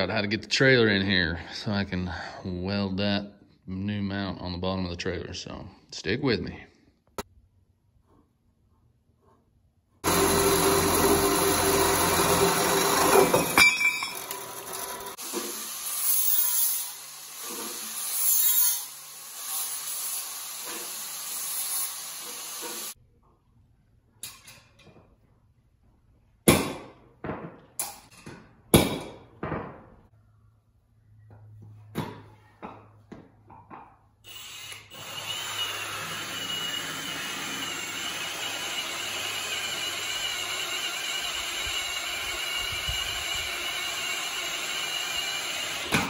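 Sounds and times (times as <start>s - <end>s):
angle grinder on steel: 10.0s - 23.0s, 34.3s - 46.0s
band saw cutting metal: 10.0s - 23.0s, 34.3s - 46.0s.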